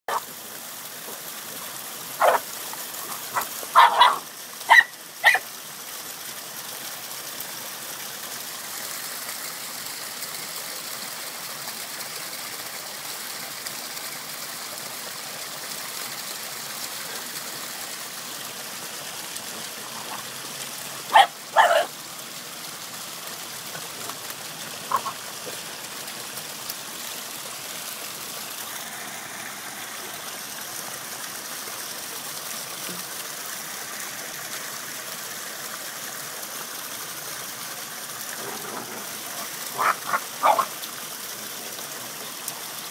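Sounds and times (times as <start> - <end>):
waterfall splashing into pool: 0.1 - 42.9
puppy barking: 2.2 - 2.4, 3.3 - 5.4, 21.1 - 21.9, 24.9 - 25.2, 39.8 - 40.7.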